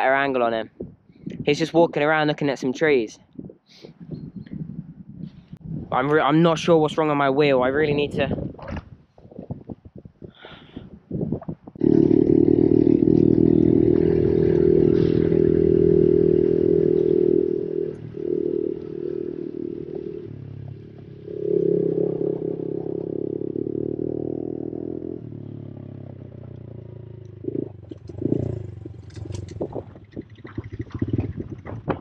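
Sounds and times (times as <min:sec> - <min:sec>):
motorbike engine revving: 0:11.8 - 0:32.0.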